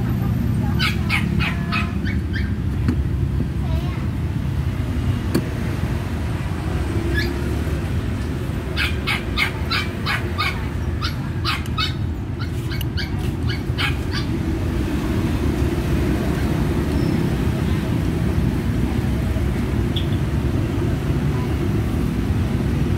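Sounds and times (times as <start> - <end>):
dog barking: 0.8 - 2.5, 8.8 - 14.3.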